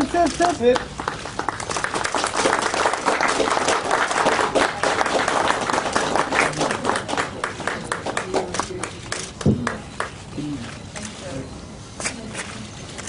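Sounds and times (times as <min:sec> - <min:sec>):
hands clapping: 0:00.7 - 0:10.2.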